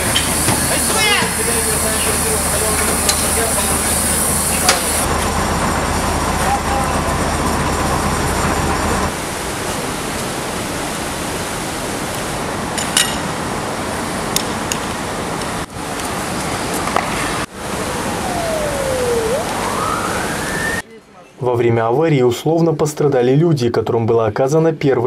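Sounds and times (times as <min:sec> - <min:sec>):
water jetting from fire hoses: 0:00.0 - 0:20.8
low engine hum: 0:04.4 - 0:09.2.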